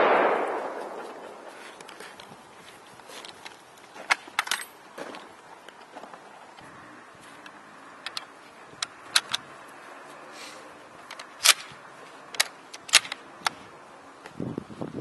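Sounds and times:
rifle bolt action clicking: 12.4 - 13.2
wind noise on microphone: 13.4 - 15.0.

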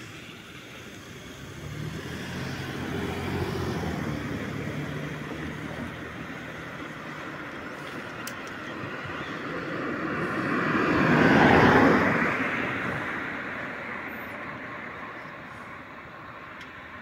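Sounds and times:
vehicle driving past: 1.2 - 7.8, 9.1 - 15.6.

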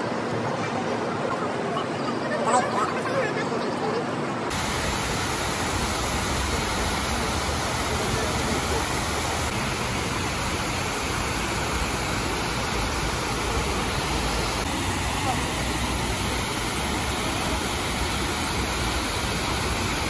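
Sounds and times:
water pouring and splashing: 4.5 - 20.0.

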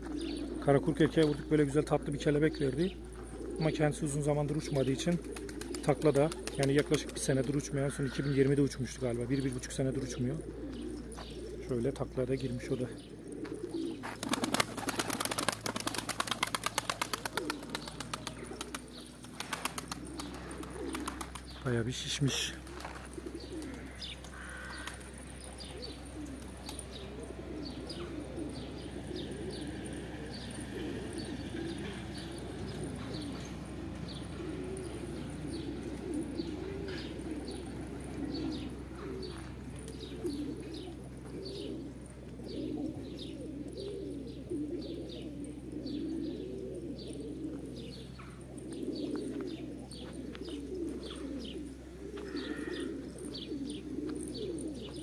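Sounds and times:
pigeons cooing: 0.0 - 55.0.

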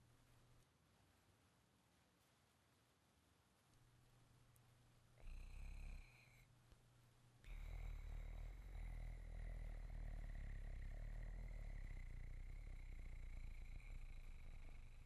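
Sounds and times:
man's rattling throat rumble: 7.5 - 15.0.

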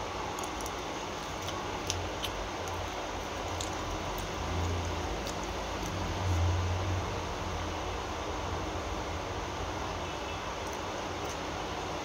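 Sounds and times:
steady background hum: 0.0 - 12.0.

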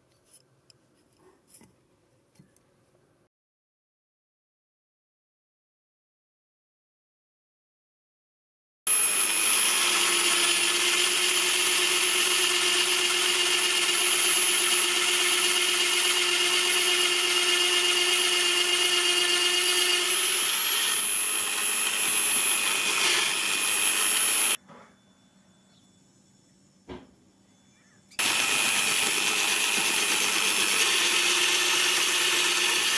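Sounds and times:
drill bit cutting wood: 8.9 - 24.6, 28.2 - 32.9
drill press motor whine: 8.9 - 24.6, 28.2 - 32.9.

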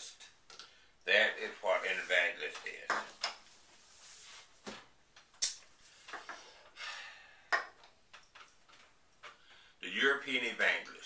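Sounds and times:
book sliding across table: 3.7 - 4.8.

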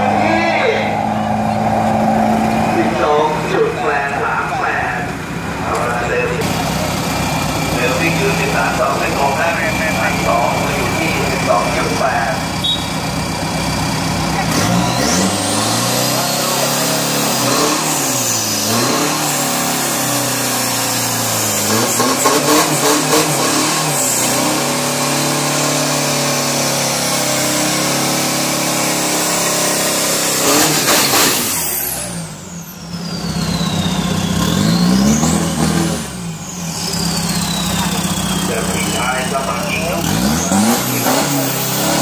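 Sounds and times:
high turbo whistle: 0.0 - 3.3, 12.6 - 13.1, 30.4 - 39.1
pickup engine revving: 0.0 - 42.0.

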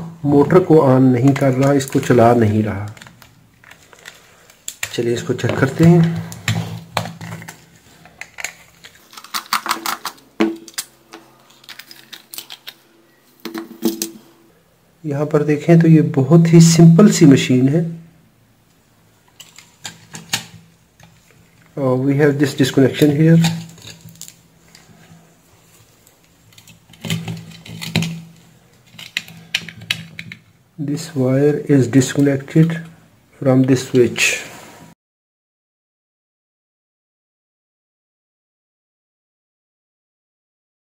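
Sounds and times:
plastic shell halves pried apart: 8.2 - 12.8.

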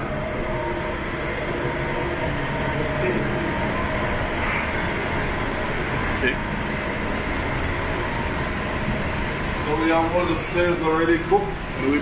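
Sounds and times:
ventilation hoods rushing: 0.0 - 12.0.

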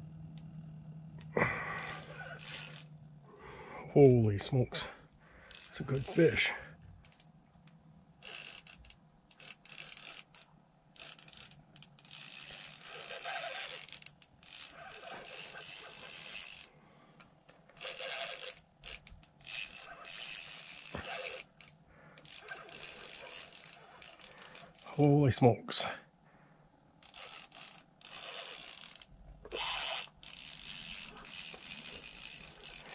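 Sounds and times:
spinning reel cranking: 1.2 - 3.0, 5.5 - 7.3, 8.2 - 16.7, 17.8 - 25.0, 27.0 - 32.9.

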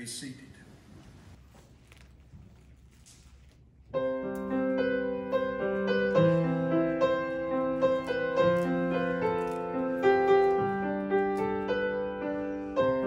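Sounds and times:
grand piano slow chords: 3.9 - 13.0.

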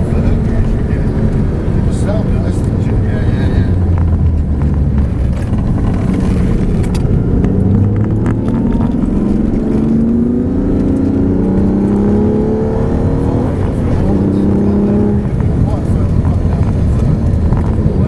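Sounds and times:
car engine accelerating: 0.0 - 18.0.

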